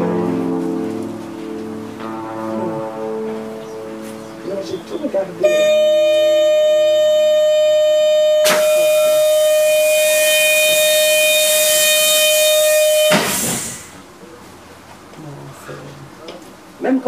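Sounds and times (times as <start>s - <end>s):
loud steady tone: 0.0s - 14.4s
hiss: 8.5s - 14.0s.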